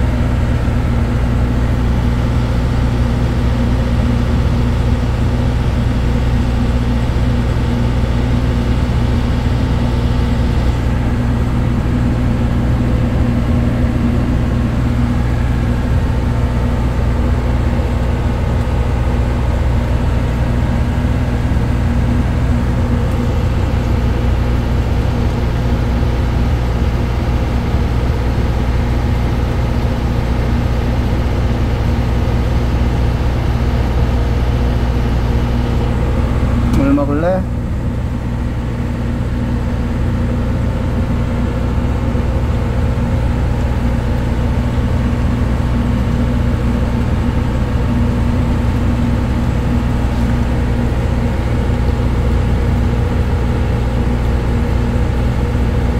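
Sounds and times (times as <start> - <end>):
ship engine drone: 0.0 - 55.9.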